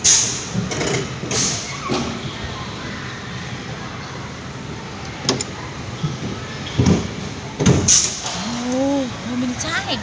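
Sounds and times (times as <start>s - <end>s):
mechanical clunks and knocks: 5.2s - 8.4s.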